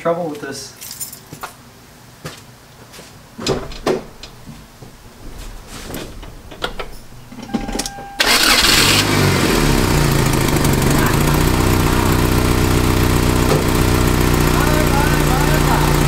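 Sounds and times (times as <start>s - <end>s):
engine cranking and idling: 3.5s - 16.0s.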